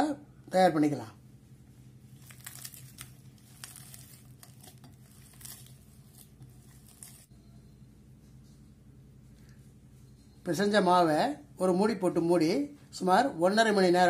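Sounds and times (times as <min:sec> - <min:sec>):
dough squishing while kneaded: 0:01.6 - 0:07.3.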